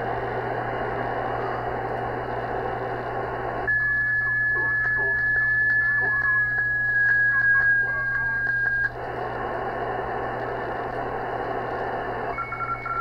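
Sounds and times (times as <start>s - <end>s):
band static hiss: 0.0s - 12.4s
steady low hum: 0.0s - 13.0s
carrier tone whistle: 3.6s - 9.0s, 12.3s - 13.0s
radio clicks: 4.3s - 12.2s.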